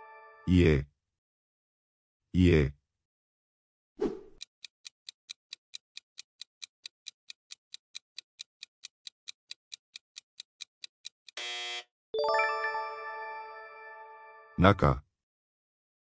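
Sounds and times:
clock ticking: 4.4 - 11.4.

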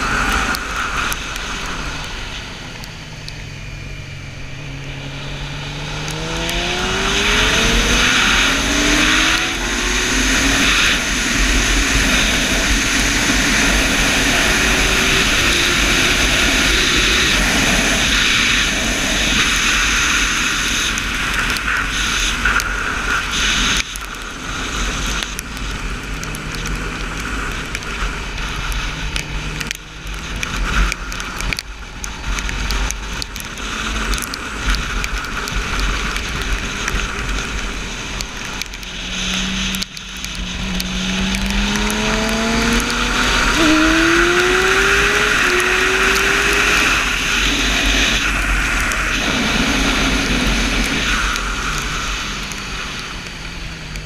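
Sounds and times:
motorcycle engine accelerating: 0.0 - 54.0
wind rush on microphone: 0.0 - 54.0.

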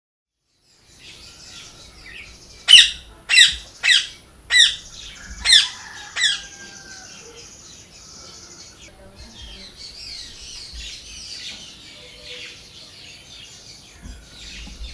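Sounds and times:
parakeet squawking: 2.6 - 6.5.

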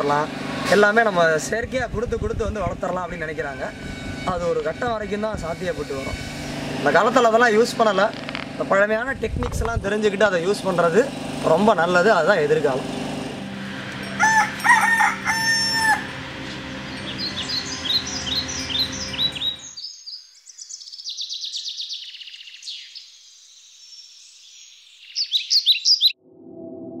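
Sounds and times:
rooster crowing: 13.7 - 16.9
small birds chirping: 16.5 - 26.2.

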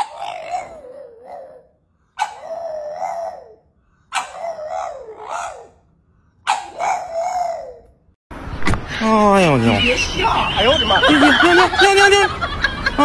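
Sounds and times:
dog howling: 0.0 - 5.8, 6.5 - 7.9.

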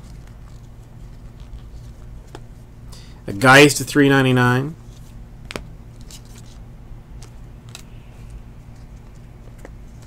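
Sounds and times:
low steady hum: 0.0 - 10.0
cards clicking together: 7.2 - 10.0.

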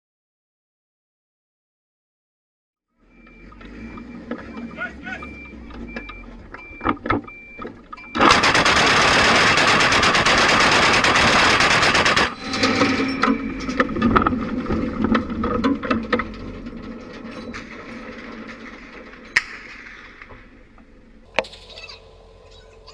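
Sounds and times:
mechanical clattering: 6.4 - 21.8
anti-aircraft gun rapid fire: 8.2 - 13.0.

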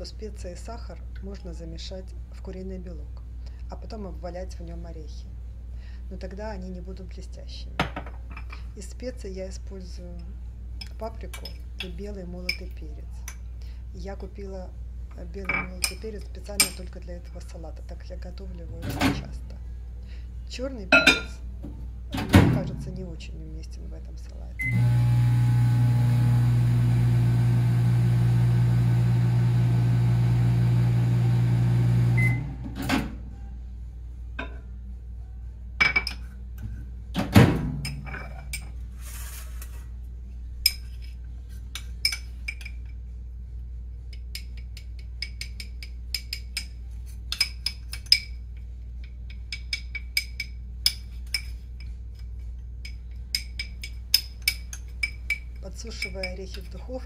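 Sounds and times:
microwave beep: 24.6 - 26.2, 31.9 - 32.6
microwave oven humming: 24.6 - 34.3.

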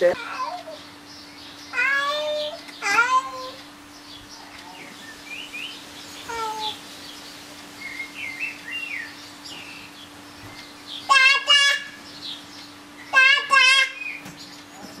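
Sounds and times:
small birds chirping: 0.0 - 15.0
loud high-pitched wavering calls: 4.8 - 14.3.

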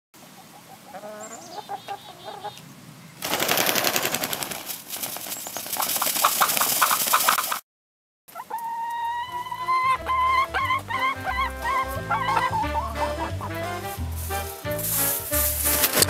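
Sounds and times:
hen clucking: 0.2 - 2.7, 6.2 - 7.6, 8.3 - 16.0
wings flapping in snow: 3.2 - 7.6, 13.6 - 16.0.

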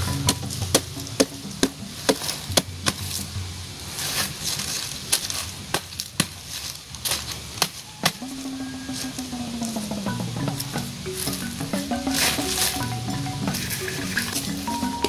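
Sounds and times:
machete chopping trunk: 5.1 - 6.4, 7.1 - 8.2.

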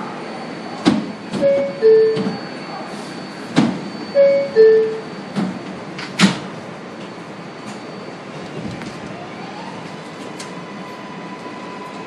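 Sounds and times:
train rumble: 0.8 - 12.0
two-note door chime: 1.4 - 2.8, 4.1 - 5.1.

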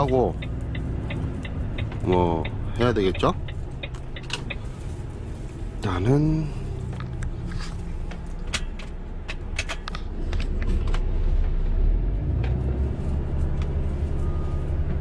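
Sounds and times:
sharp clicks: 0.0 - 4.6
diesel truck engine rumbling: 0.0 - 15.0.

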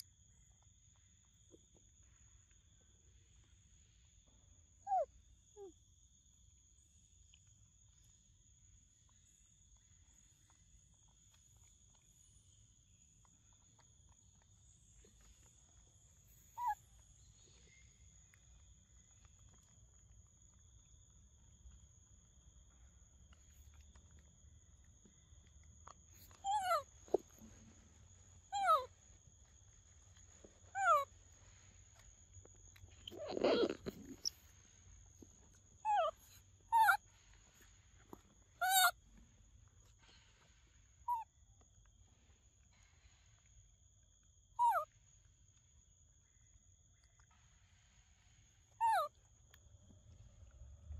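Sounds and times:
insects droning: 0.0 - 50.9
monkey squeaky calls: 28.6 - 28.9, 33.0 - 34.4, 35.9 - 37.0, 38.6 - 38.9, 48.8 - 49.1.

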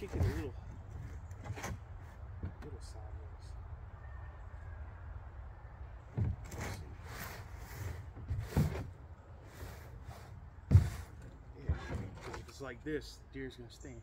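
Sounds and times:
shovel scraping soil: 6.5 - 8.9.

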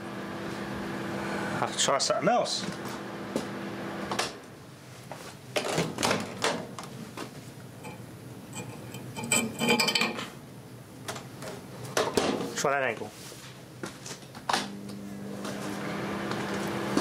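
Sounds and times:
microwave oven hum: 0.0 - 4.8, 13.8 - 17.0.

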